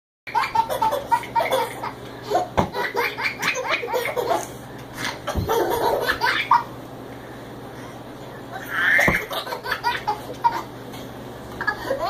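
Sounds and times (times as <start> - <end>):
toddler laughing: 0.3 - 6.7, 8.5 - 10.7, 11.6 - 12.0.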